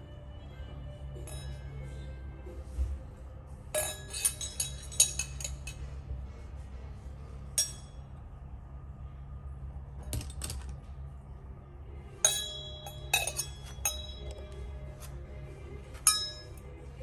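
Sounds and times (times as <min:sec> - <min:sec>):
low steady hum: 0:00.0 - 0:17.0
glassware and cutlery clinking: 0:03.8 - 0:05.9, 0:07.5 - 0:08.1, 0:12.2 - 0:15.1, 0:16.0 - 0:16.7.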